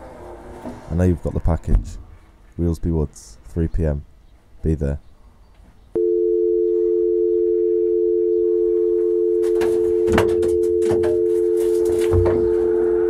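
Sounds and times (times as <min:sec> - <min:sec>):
telephone dial tone: 0:06.0 - 0:13.0
handset and door knocking: 0:09.4 - 0:11.4.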